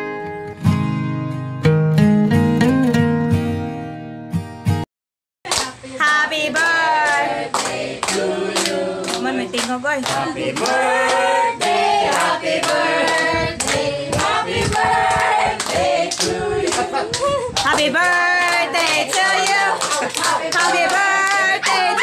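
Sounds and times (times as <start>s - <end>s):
group singing: 5.5s - 22.0s
people clapping: 5.5s - 22.0s.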